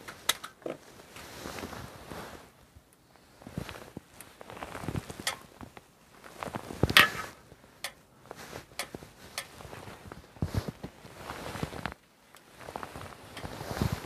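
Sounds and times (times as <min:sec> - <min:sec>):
crunching scrape: 0:09.6 - 0:14.0.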